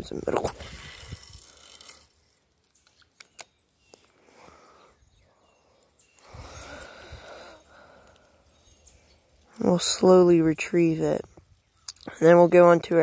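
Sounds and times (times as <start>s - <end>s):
faint small clicks: 2.7s - 4.1s.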